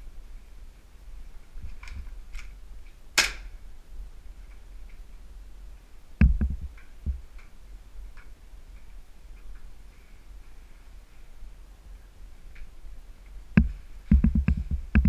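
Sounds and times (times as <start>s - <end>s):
low thuds of heavy steps: 6.2s - 7.3s, 13.6s - 15.0s.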